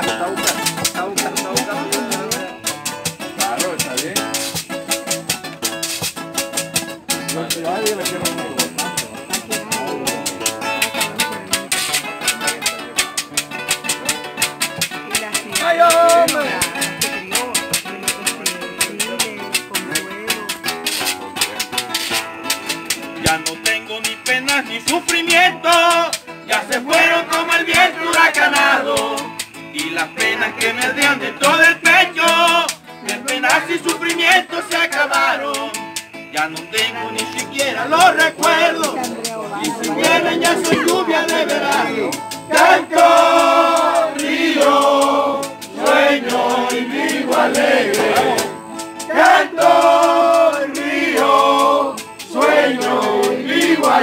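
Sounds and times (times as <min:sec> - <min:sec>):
acoustic guitars strumming: 0:00.0 - 0:54.0
maraca shaking: 0:00.0 - 0:54.0
man singing: 0:15.1 - 0:21.0, 0:23.2 - 0:45.5.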